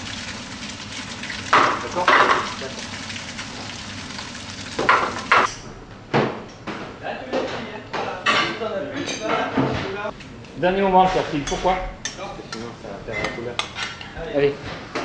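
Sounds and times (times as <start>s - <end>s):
potatoes sizzling in saucepan: 0.0s - 5.5s
pan clattering: 1.4s - 2.9s, 4.8s - 5.5s.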